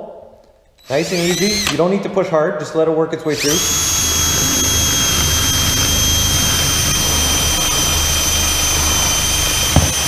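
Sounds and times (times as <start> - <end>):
cordless drill boring through plywood: 0.8 - 1.8, 3.3 - 10.0.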